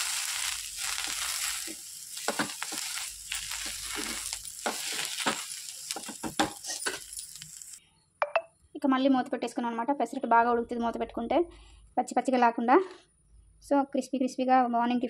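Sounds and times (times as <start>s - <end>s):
metal spatula scraping a pan: 0.0s - 7.8s
oil sizzling in a pan: 0.0s - 7.8s.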